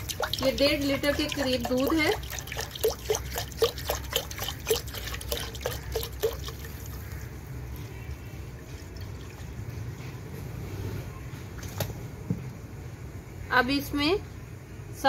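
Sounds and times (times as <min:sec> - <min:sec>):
milk pouring into a pan: 0:00.0 - 0:07.3.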